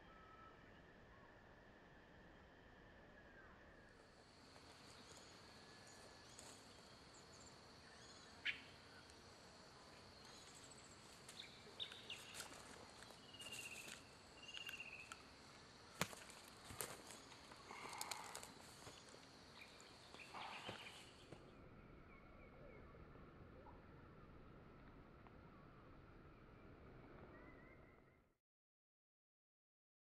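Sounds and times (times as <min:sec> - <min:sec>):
high insect trill: 0:04.0 - 0:21.4
bird chirps and trills: 0:10.3 - 0:15.2, 0:19.6 - 0:21.4
sharp clicks: 0:14.4 - 0:15.2.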